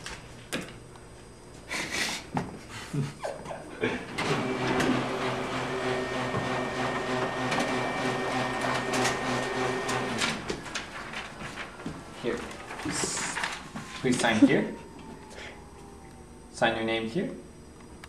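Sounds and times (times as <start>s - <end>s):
laser printer printing: 4.1s - 11.2s.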